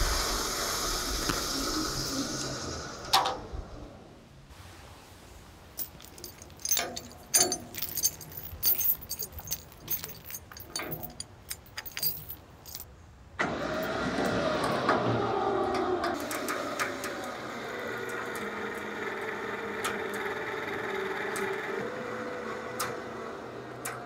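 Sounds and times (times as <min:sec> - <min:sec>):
steel chain clinking: 0:05.8 - 0:12.9
winch motor humming: 0:13.4 - 0:24.0.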